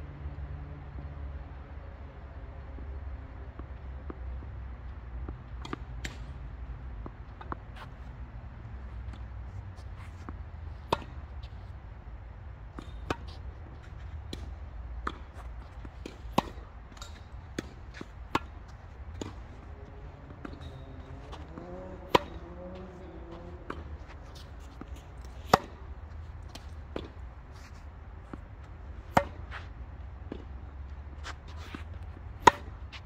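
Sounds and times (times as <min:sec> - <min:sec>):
rackets hitting tennis ball: 0:12.7 - 0:33.0
ball bouncing on court: 0:19.1 - 0:25.8.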